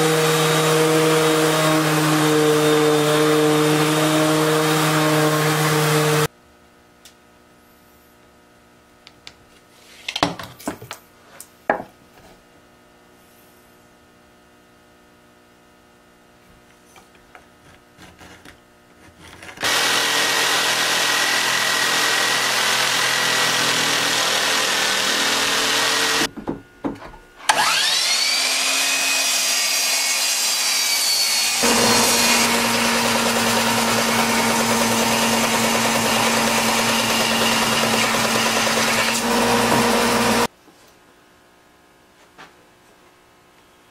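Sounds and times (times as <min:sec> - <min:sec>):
jigsaw cutting wood: 0:00.0 - 0:06.3, 0:19.2 - 0:26.3, 0:27.5 - 0:40.5
belt sander whining: 0:19.6 - 0:26.3, 0:27.4 - 0:40.5.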